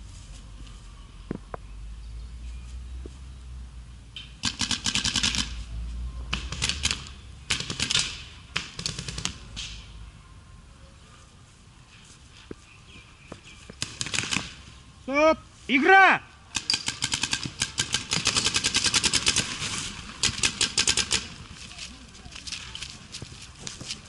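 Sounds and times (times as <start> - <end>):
paintball markers rapid firing: 4.4 - 5.5, 6.3 - 9.4, 13.8 - 14.6, 16.5 - 19.6, 20.2 - 21.3.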